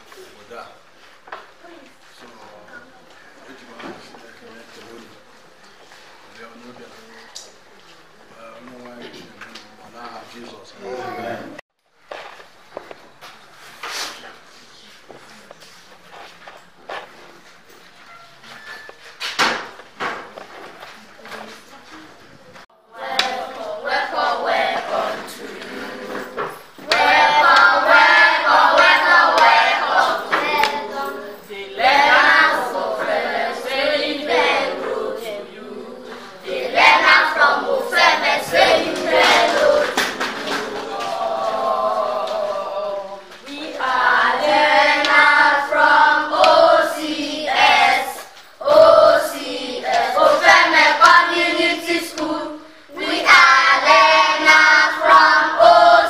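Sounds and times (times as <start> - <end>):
children singing: 22.8 - 56.0.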